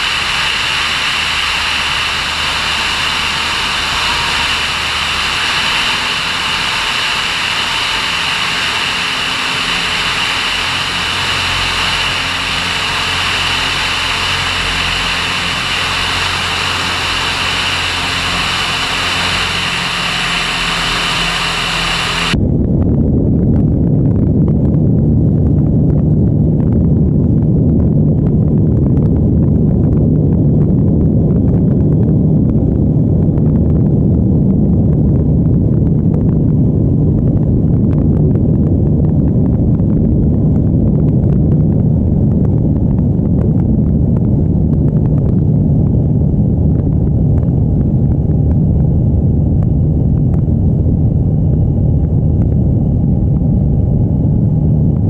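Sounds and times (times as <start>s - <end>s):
light aircraft engine drone: 0.0s - 55.0s
wind rush: 0.0s - 55.0s.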